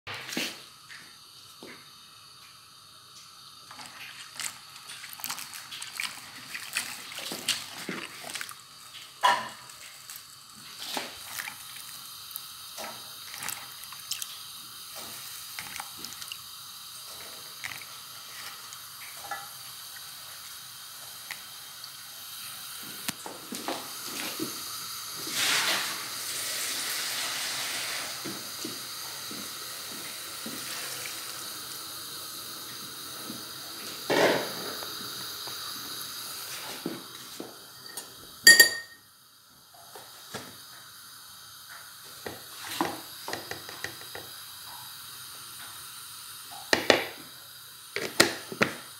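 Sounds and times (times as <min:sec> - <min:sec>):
water running and sloshing: 0:03.2 - 0:38.4
clinks and knocks of pots: 0:37.8 - 0:39.0
spoon clinking: 0:37.8 - 0:39.0.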